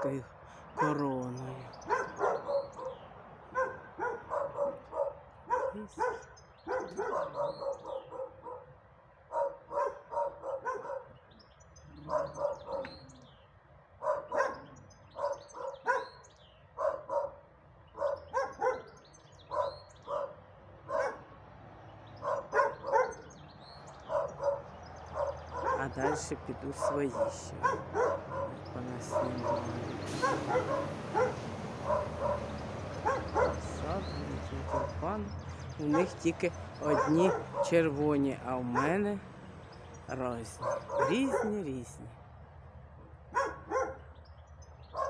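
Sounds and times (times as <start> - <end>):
dog barking: 0.8 - 1.1, 1.7 - 11.2, 12.0 - 13.3, 14.0 - 21.4, 22.1 - 38.0, 38.7 - 39.0, 40.5 - 41.8, 43.3 - 44.2.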